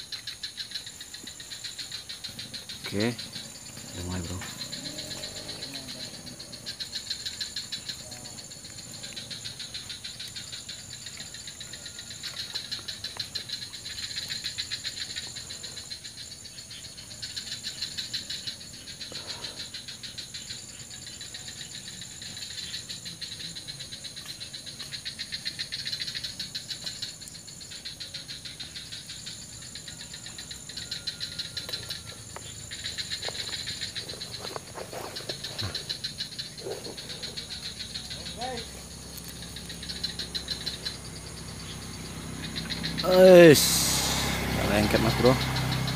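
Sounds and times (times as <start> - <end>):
insects chirring: 0.0 - 45.9
high-pitched trill: 43.0 - 45.9.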